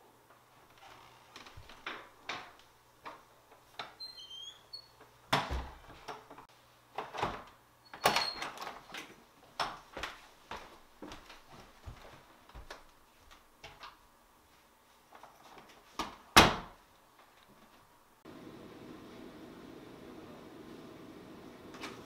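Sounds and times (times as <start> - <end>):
footsteps on wooden floor: 9.9 - 13.4.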